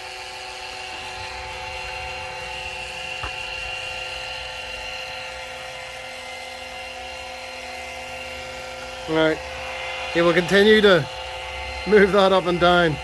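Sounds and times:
oil extractor pump running: 0.0 - 13.0.

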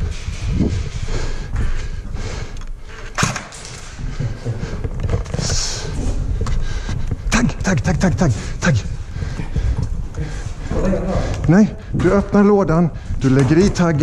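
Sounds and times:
footsteps moving quickly: 0.0 - 14.0
gear and clothing rustling: 0.0 - 14.0.

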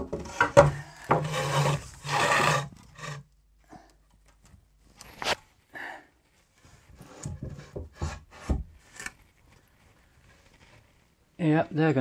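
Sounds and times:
wood scraping on wood: 0.0 - 3.3, 6.6 - 9.3.

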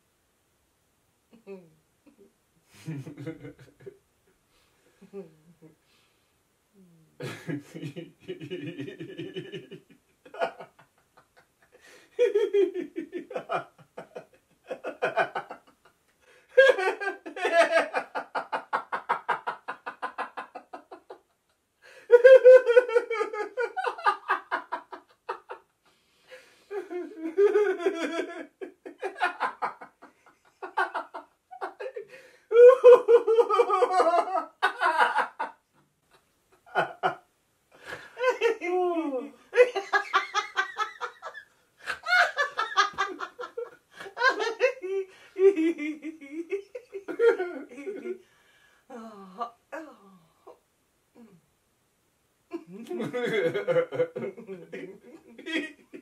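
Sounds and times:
man and woman laughing: 2.8 - 3.9, 7.2 - 15.8, 16.5 - 21.3, 22.0 - 25.7, 26.7 - 35.6, 36.6 - 37.2, 37.8 - 48.2, 52.5 - 56.0.

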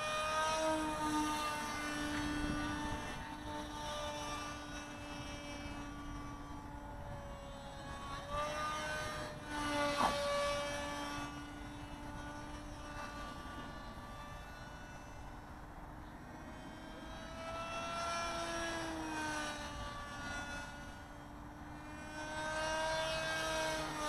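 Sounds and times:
model plane motor whine: 0.0 - 24.0.

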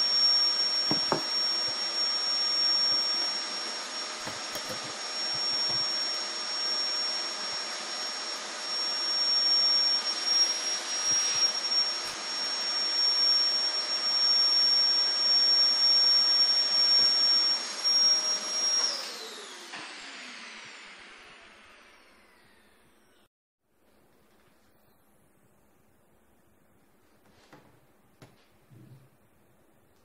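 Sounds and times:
high-speed electric motor whining: 0.0 - 22.7.

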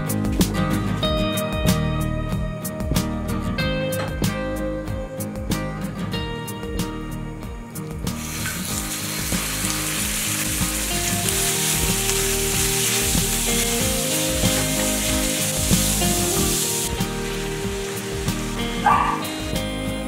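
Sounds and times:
meat sizzling in hot oil: 8.0 - 20.0.

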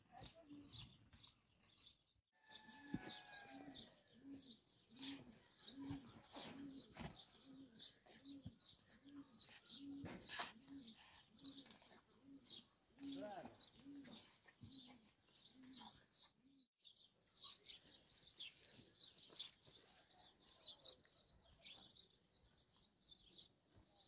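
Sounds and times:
small birds chirping: 0.0 - 24.0
pigeon cooing: 4.0 - 16.0.

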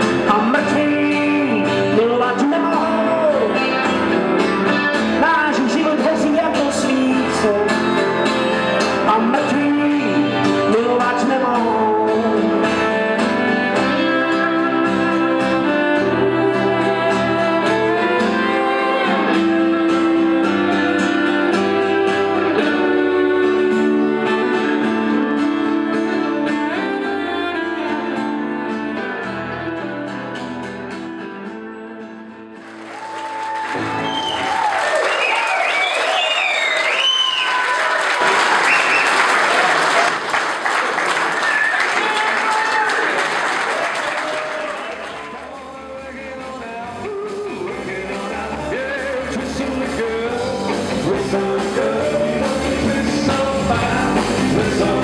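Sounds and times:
man singing: 0.0 - 30.1, 44.2 - 55.0
acoustic and electric guitars: 0.0 - 55.0
audience applauding and cheering: 32.5 - 46.1.

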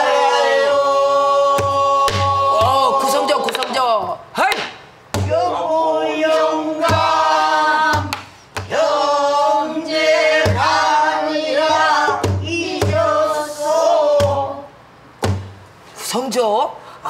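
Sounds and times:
barrel drum struck with stick: 6.8 - 7.2, 10.3 - 10.8, 12.1 - 13.1, 15.2 - 15.6.

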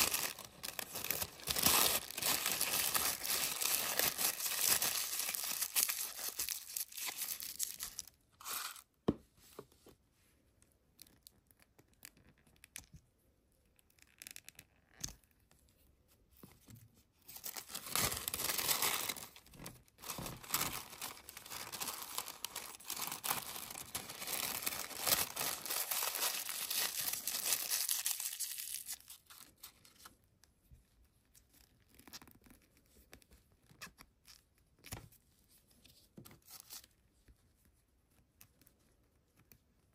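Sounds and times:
tissue paper rustling: 0.0 - 8.8, 17.4 - 19.4, 20.0 - 29.7.

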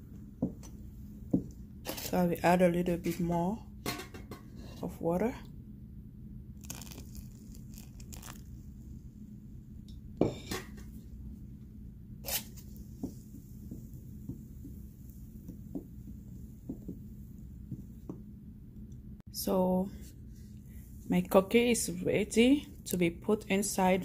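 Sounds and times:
batter squelching: 6.6 - 9.2.

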